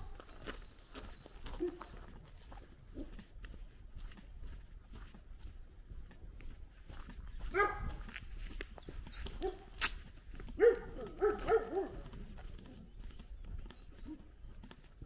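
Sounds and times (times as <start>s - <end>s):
dog barking: 1.6s - 1.9s, 7.5s - 8.1s, 9.4s - 9.8s, 10.5s - 12.3s.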